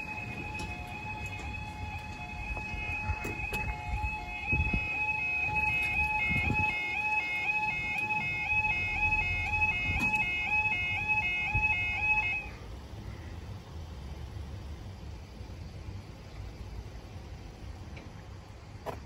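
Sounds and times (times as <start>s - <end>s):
level crossing two-tone alarm: 0.0s - 12.6s.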